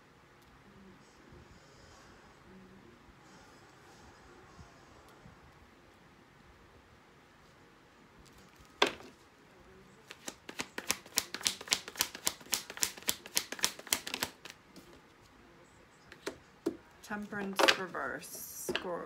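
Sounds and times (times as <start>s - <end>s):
cards shuffling clicks: 10.0s - 15.0s
cards tapping: 10.0s - 15.0s.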